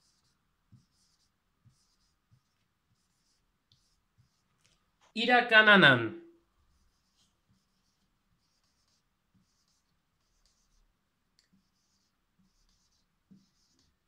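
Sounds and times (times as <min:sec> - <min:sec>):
marker scratching on whiteboard: 0:00.0 - 0:04.7, 0:06.6 - 0:14.0.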